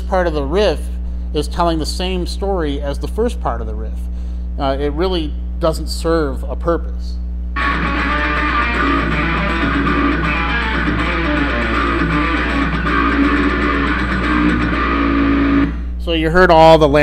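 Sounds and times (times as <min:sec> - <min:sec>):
heavy metal electric guitar riff: 0:07.6 - 0:16.0.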